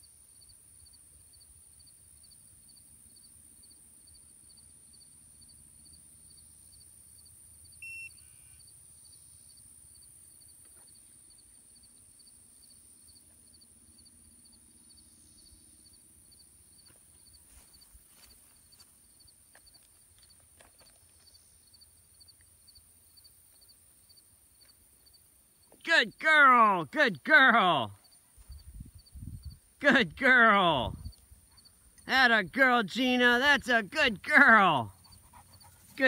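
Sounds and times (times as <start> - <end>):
high hiss of insects: 0.0 - 25.8, 28.0 - 29.8
cricket chirping: 0.0 - 27.2, 27.8 - 36.0.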